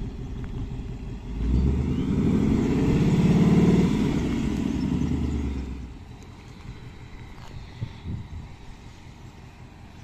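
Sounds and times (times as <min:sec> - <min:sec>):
car engine revving: 0:00.0 - 0:06.0.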